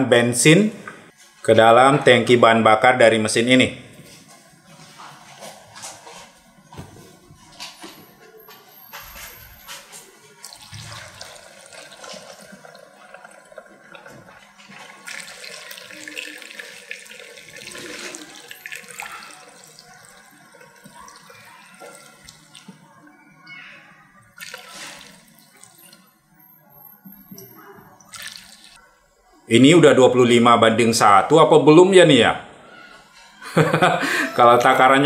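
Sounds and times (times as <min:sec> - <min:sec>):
petrol pouring into fuel tank: 0:10.4 - 0:22.6.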